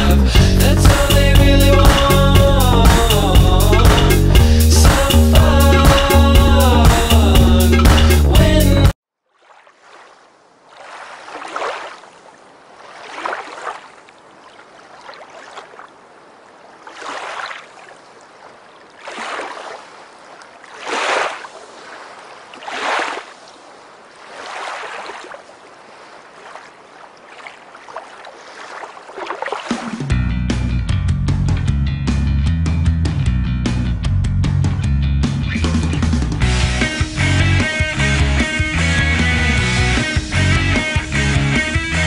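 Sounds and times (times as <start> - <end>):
music: 0.0 - 9.0, 30.0 - 42.0
waves washing in: 9.4 - 30.1.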